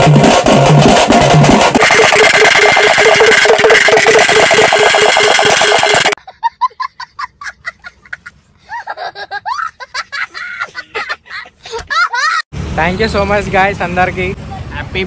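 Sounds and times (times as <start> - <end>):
street band drums beating: 0.0 - 6.2
child giggling: 6.2 - 12.5.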